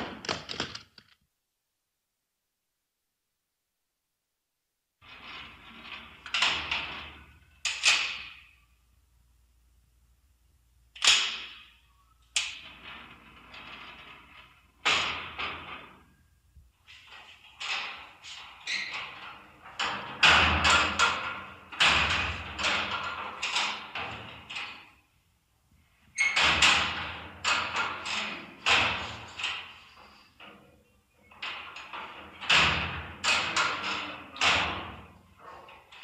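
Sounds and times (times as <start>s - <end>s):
knocks and thumps: 0.0s - 1.2s.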